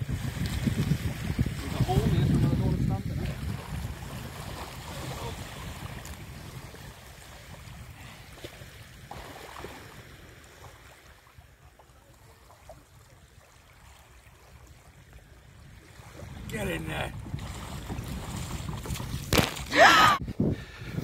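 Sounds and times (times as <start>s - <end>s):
small splashes: 8.2s - 14.8s.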